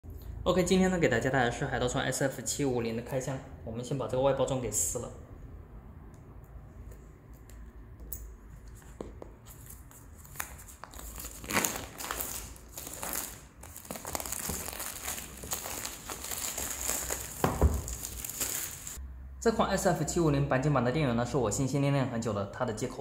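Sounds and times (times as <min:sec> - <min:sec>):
plastic shrink-wrap tearing and crinkling: 0:10.2 - 0:19.0.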